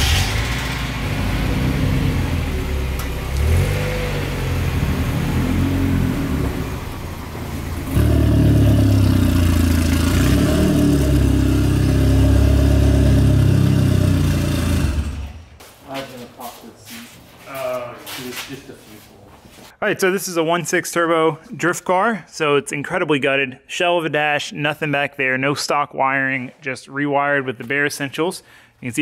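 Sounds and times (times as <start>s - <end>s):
car engine driving off: 0.0s - 15.6s
loud car engine running: 0.0s - 15.6s.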